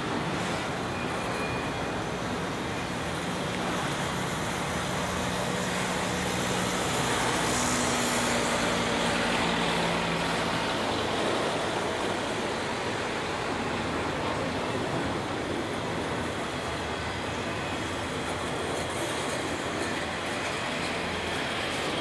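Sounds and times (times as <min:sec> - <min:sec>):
train wheels on rail: 0:00.0 - 0:22.0.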